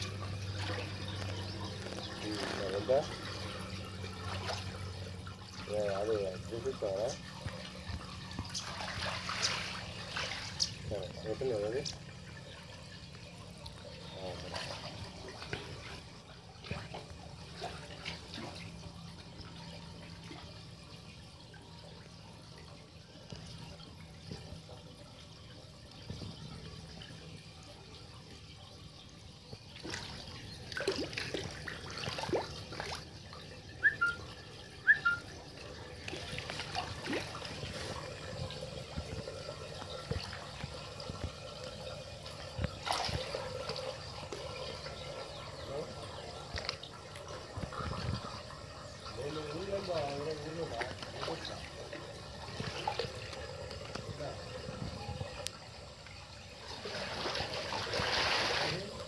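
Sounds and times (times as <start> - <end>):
shallow water sloshing: 0.0 - 59.0
water splashes: 0.0 - 59.0.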